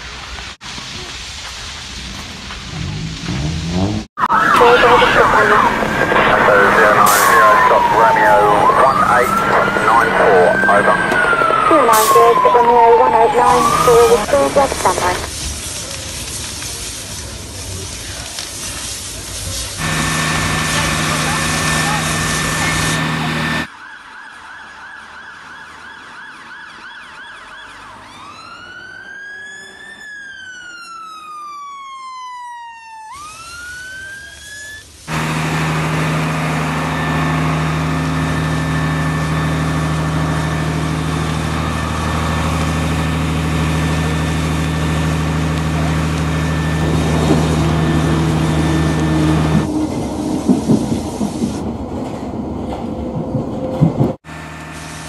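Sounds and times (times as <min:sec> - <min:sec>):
low engine drone: 0:02.6 - 0:15.3, 0:19.8 - 0:23.7, 0:34.7 - 0:50.7
siren wailing: 0:04.2 - 0:15.3, 0:19.8 - 0:50.4
train rattling past: 0:35.2 - 0:54.3.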